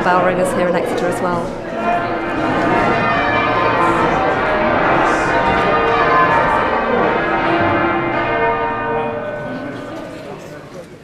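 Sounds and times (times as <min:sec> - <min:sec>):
church bells ringing: 0:00.0 - 0:11.0.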